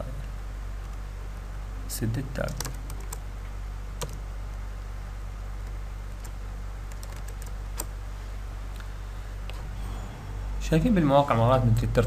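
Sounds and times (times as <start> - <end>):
steady low hum: 0.0 - 12.0
keyboard keystrokes: 6.2 - 7.9.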